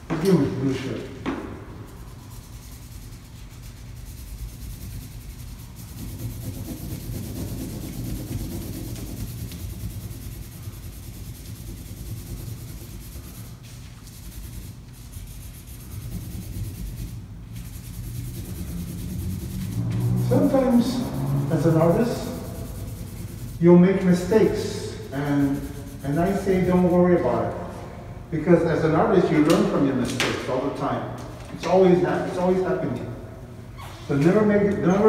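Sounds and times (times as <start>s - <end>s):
marker pen rubbing on paper: 1.9s - 27.7s.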